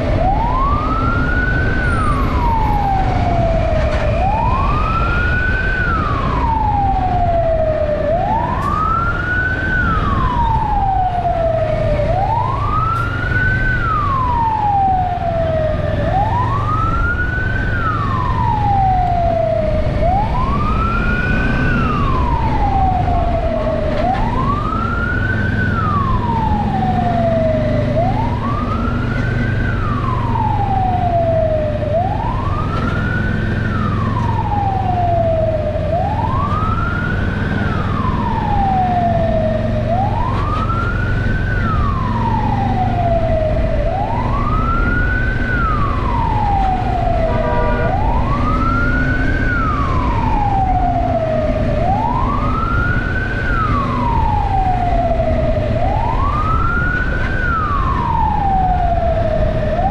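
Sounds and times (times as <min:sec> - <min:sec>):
fire truck siren wailing: 0:00.0 - 0:59.9.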